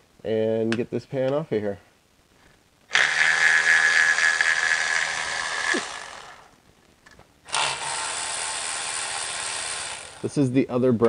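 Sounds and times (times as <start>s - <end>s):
power tool motor running: 2.9s - 6.6s, 7.5s - 10.4s.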